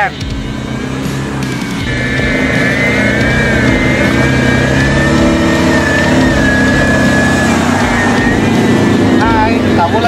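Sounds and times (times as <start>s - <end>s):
off-road engine under load: 0.0s - 10.0s
wavering high whine: 0.0s - 10.0s.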